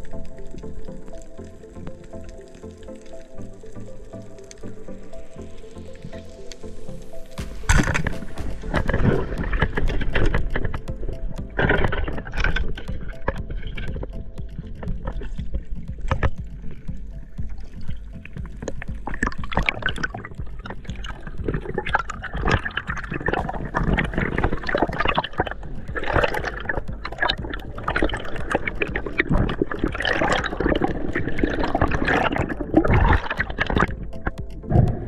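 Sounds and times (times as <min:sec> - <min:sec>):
irregular crackling clicks: 0:00.0 - 0:35.0
underwater water rushing and bubbling: 0:00.0 - 0:35.0.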